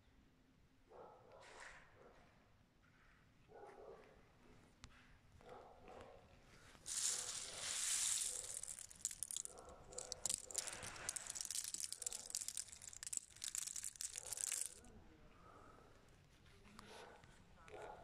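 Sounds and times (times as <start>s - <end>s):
pistachios rattling: 6.9s - 14.8s
plastic sack crinkling: 6.9s - 14.8s.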